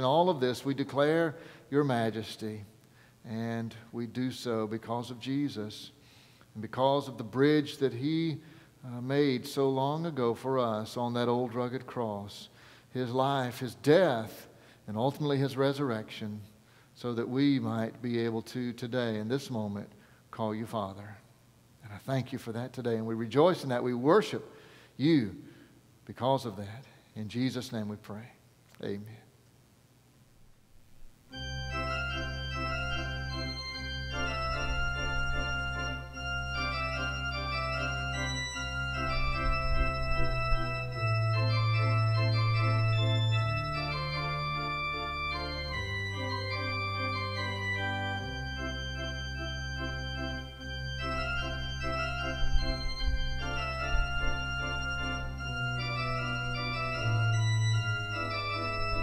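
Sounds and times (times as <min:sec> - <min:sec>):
pipe organ chords: 0:00.0 - 0:02.4, 0:31.0 - 0:59.0.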